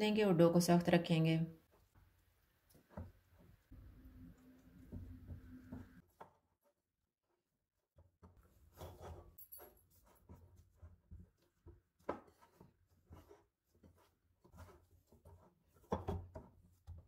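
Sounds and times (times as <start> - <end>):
hands squishing dough: 9.9 - 17.0.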